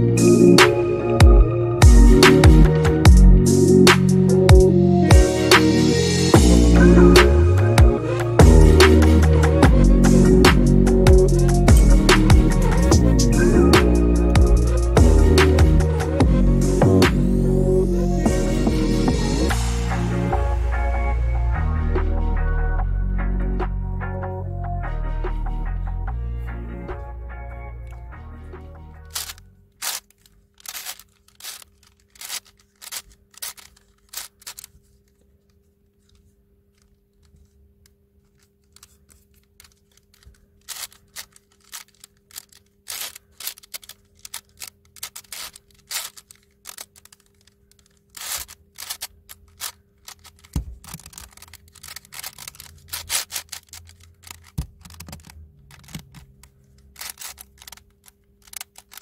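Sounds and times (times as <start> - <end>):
plastic puzzle clicking: 29.0 - 59.0.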